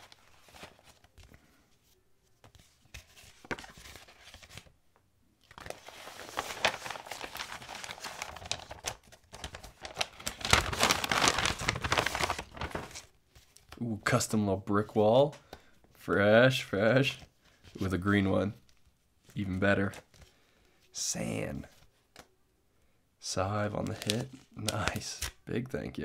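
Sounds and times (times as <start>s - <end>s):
envelope crinkling: 0.0s - 1.4s, 2.4s - 4.7s, 5.4s - 13.7s, 23.8s - 25.3s
paper rustling: 0.0s - 4.7s, 5.4s - 13.8s, 23.8s - 25.3s.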